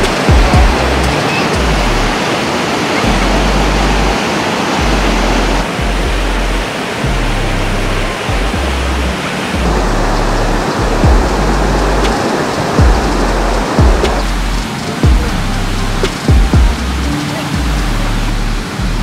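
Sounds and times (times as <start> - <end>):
background music with deep bass: 0.0 - 19.0
loud even rushing noise: 0.0 - 19.0.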